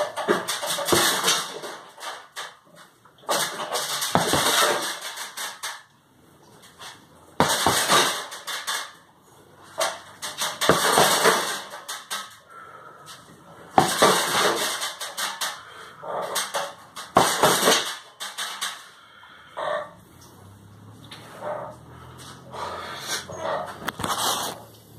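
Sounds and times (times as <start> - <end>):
gloved punches on heavy bag: 3.4 - 5.0, 7.4 - 8.3, 10.3 - 11.7, 13.8 - 14.7, 17.1 - 18.0.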